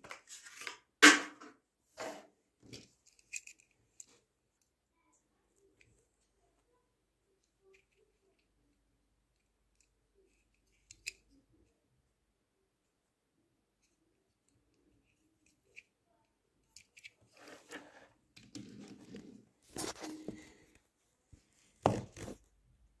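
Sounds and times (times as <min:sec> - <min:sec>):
toy car rolling on wooden desk: 0:17.2 - 0:19.4.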